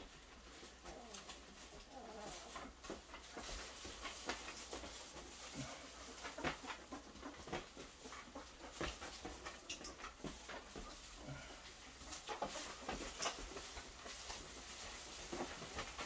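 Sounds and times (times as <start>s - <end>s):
soft clicks and rustles: 0.0s - 16.0s.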